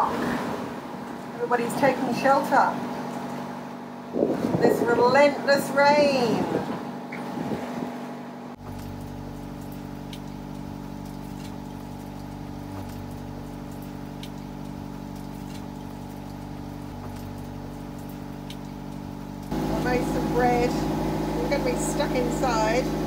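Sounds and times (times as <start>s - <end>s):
boat engine droning: 0.0s - 10.6s, 19.0s - 23.0s.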